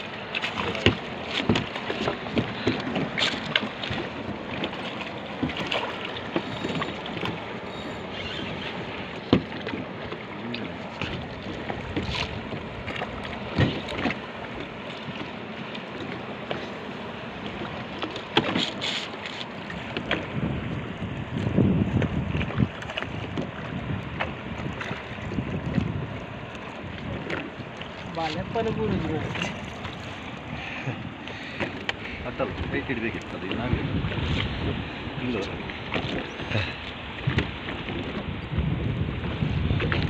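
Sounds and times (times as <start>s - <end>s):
water splashing against boat: 0.0s - 40.0s
wind buffeting microphone: 19.8s - 27.4s, 28.0s - 40.0s.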